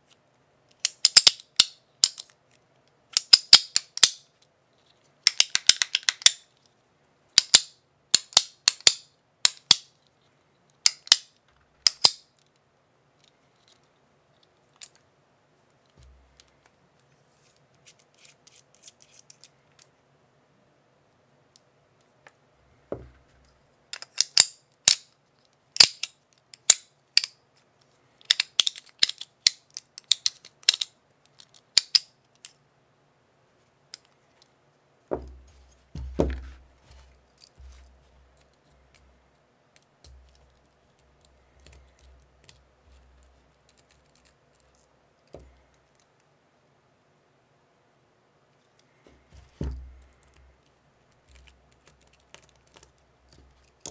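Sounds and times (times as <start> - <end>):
metallic clicks and snaps: 0.1 - 4.5, 5.2 - 6.7, 7.4 - 10.0, 10.7 - 12.6, 23.9 - 27.4, 28.2 - 32.6, 48.8 - 53.9
soft handling noise: 4.3 - 5.2, 11.4 - 20.0, 21.6 - 24.2, 33.6 - 46.3, 48.5 - 53.9.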